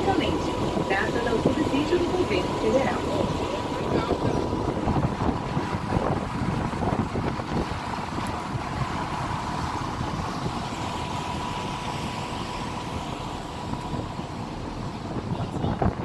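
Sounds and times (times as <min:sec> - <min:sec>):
vehicle engine rumble: 0:00.0 - 0:16.0.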